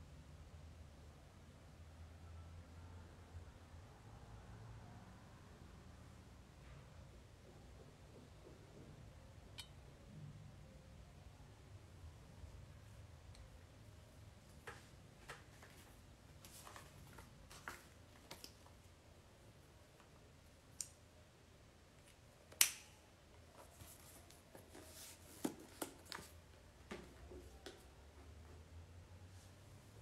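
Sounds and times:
faint clicks and taps: 14.5s - 18.7s.

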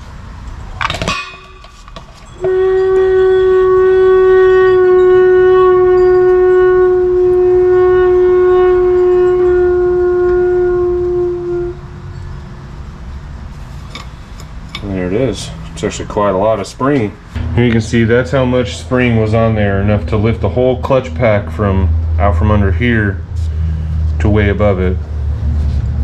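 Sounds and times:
loud horn-like whistling tone: 2.2s - 12.4s, 17.4s - 24.1s.

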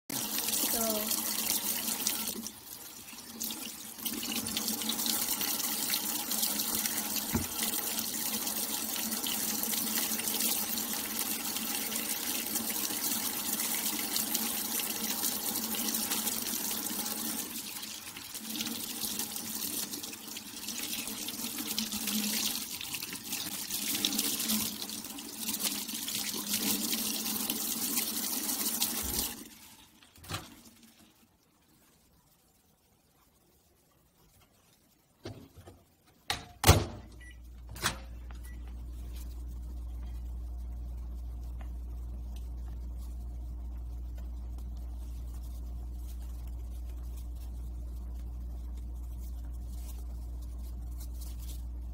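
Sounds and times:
faucet water splashing into sink: 0.1s - 30.9s.

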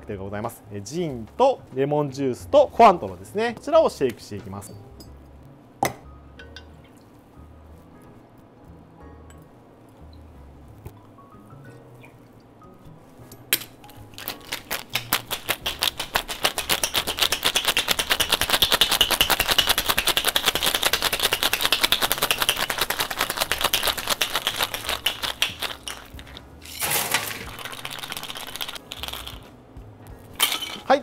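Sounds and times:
ice rattling in cocktail shaker: 14.1s - 29.5s, 30.4s - 30.9s.

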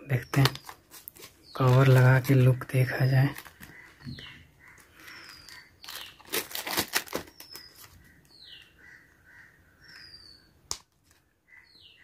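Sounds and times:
bird chirps: 3.5s - 6.4s, 7.2s - 10.6s, 11.4s - 12.0s.

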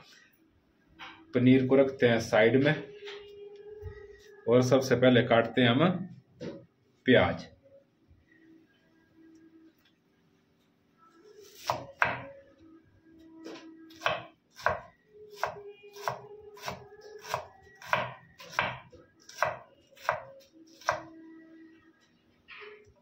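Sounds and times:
knife chopping on wooden board: 11.6s - 12.3s, 14.0s - 20.2s.

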